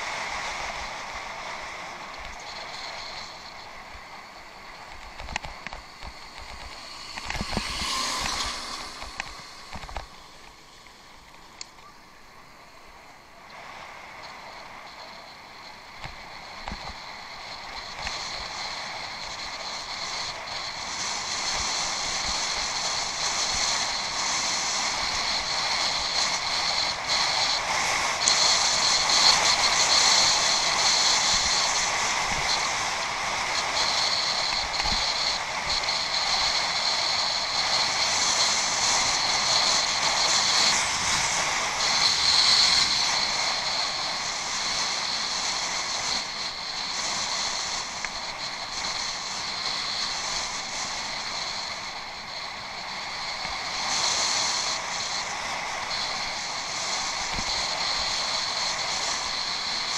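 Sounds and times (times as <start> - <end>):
air rushing past: 0.0 - 11.3.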